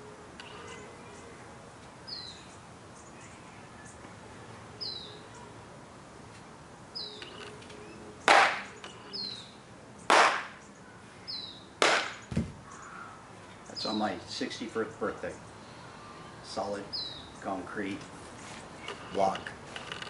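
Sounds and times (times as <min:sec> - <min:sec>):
bird chirping: 0:02.0 - 0:04.1, 0:04.8 - 0:05.5, 0:06.9 - 0:19.4.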